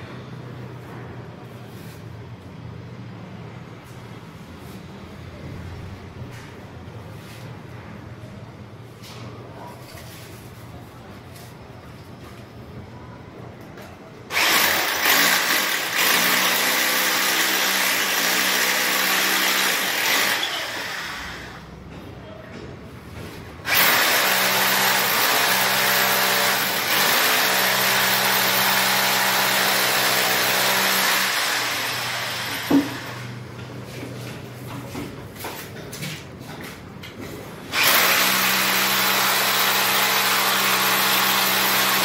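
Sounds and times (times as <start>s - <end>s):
electric drill running: 14.3s - 21.6s, 23.7s - 33.3s, 37.7s - 42.0s.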